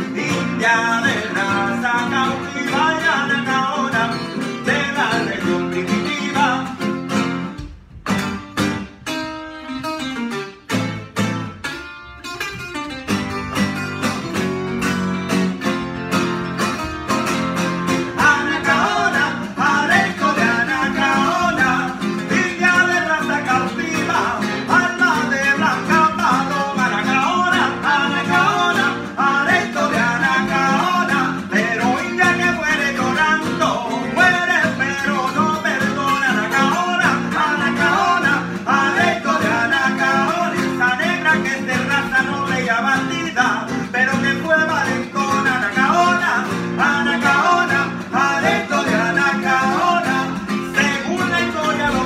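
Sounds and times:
two men singing: 0.0s - 7.1s, 17.9s - 52.0s
acoustic guitars strummed and picked: 0.0s - 52.0s.

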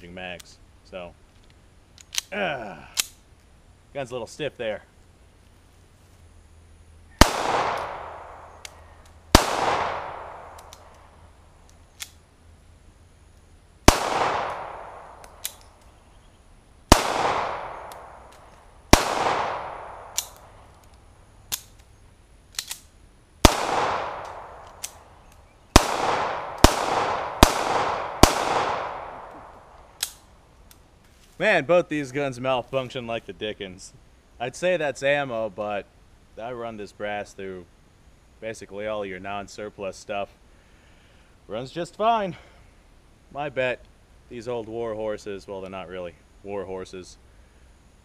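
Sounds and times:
pistol shots: 7.2s - 11.0s, 13.9s - 15.6s, 16.9s - 20.5s, 23.4s - 25.0s, 25.7s - 30.2s
faint clicks: 8.6s - 9.2s, 10.5s - 12.2s.

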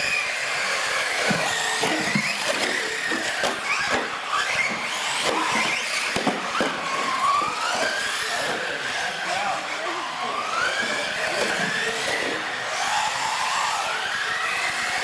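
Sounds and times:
electric motors whining: 0.0s - 15.0s
tyres scrubbing on concrete: 0.9s - 9.5s.

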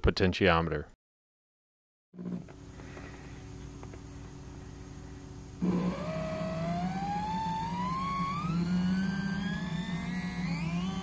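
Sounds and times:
low hum: 2.2s - 11.0s
lower motor whine: 2.2s - 11.0s
stepper motor whining: 5.6s - 11.0s.

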